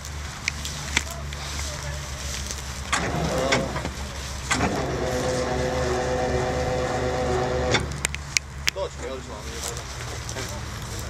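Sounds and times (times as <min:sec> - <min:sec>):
vehicle engine running: 0:00.0 - 0:11.0
motor whine: 0:02.8 - 0:08.2.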